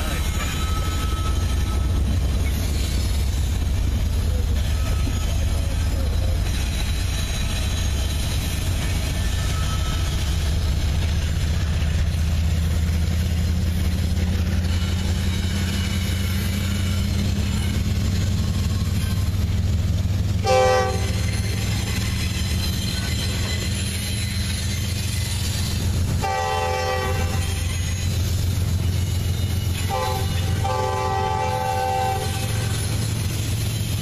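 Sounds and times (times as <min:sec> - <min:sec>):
freight train rumbling past: 0:00.0 - 0:34.0
train horn blast: 0:20.4 - 0:21.3, 0:26.2 - 0:27.9, 0:29.8 - 0:32.8.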